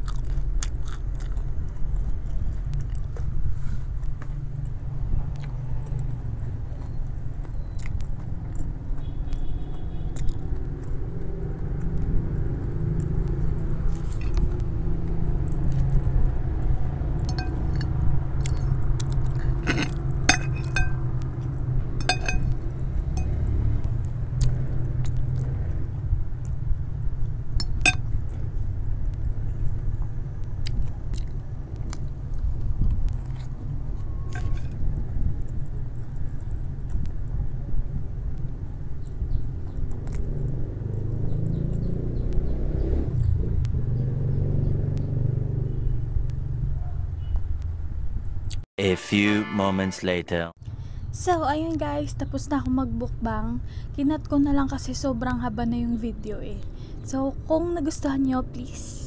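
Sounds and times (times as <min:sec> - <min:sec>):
person chewing noodles: 0:00.0 - 0:09.1, 0:10.1 - 0:12.2, 0:17.5 - 0:20.8, 0:30.6 - 0:34.5
cutlery clinking on glass plate: 0:17.3 - 0:17.9, 0:19.7 - 0:21.0, 0:22.0 - 0:22.6, 0:27.6 - 0:28.0.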